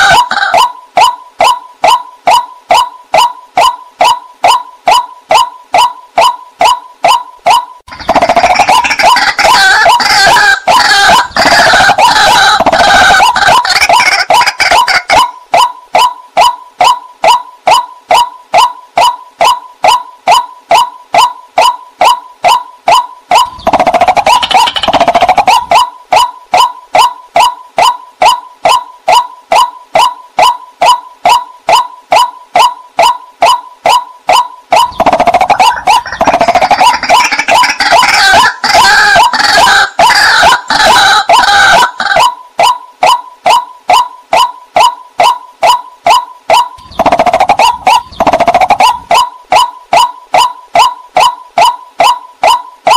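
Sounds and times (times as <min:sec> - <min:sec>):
bird calling sharp notes: 0:00.0 - 0:52.9
rapid harsh bird notes: 0:46.7 - 0:49.3.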